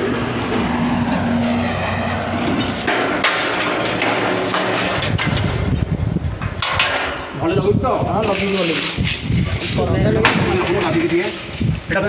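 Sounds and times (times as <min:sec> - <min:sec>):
metal shutter slats clattering: 0:00.2 - 0:07.4.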